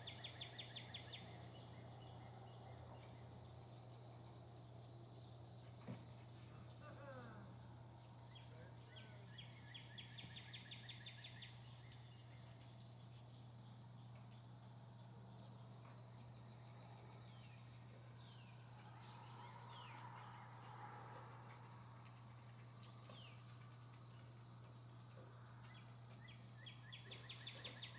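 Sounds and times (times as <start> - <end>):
insect drone: 0.1 - 27.9
bird calls: 5.9 - 13.2, 25.0 - 27.9.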